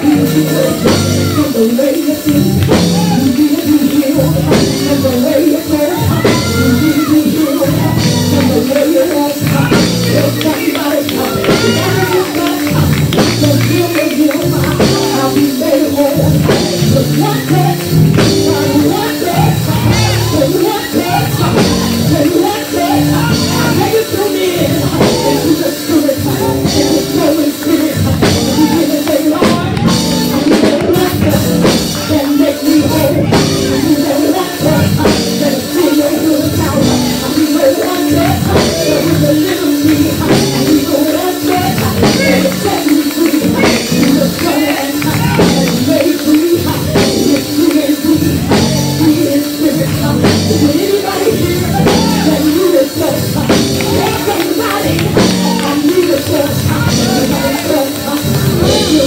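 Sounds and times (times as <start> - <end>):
church band playing gospel: 0.0 - 59.0
drums beating: 0.0 - 59.0
person singing: 0.0 - 59.0.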